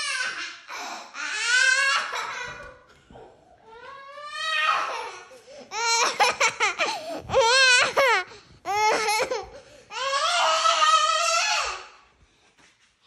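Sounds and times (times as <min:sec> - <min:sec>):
child squealing and wailing: 0:03.6 - 0:06.3, 0:07.2 - 0:12.0.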